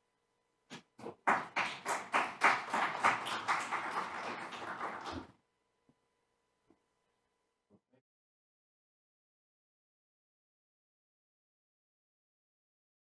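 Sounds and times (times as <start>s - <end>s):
small audience applause: 1.0s - 5.3s.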